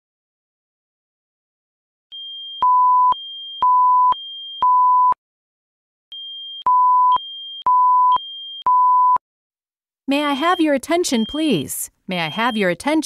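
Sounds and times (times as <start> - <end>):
alternating high-low alarm tone: 2.1 - 5.0, 6.1 - 9.1, 10.2 - 12.7.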